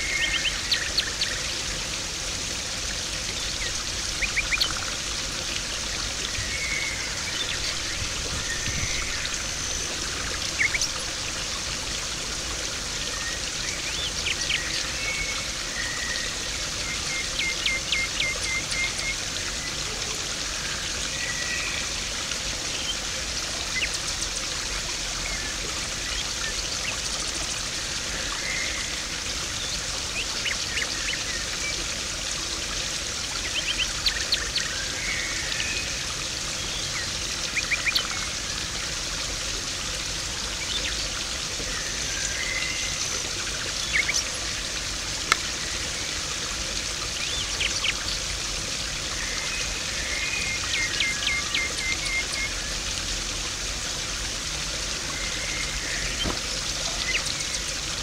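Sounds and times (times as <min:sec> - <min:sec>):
small birds twittering: 0:00.0 - 0:01.6, 0:02.8 - 0:11.9, 0:33.3 - 0:39.0, 0:40.2 - 0:52.9, 0:54.8 - 0:58.0
pond water rushing and splashing: 0:00.0 - 0:58.0.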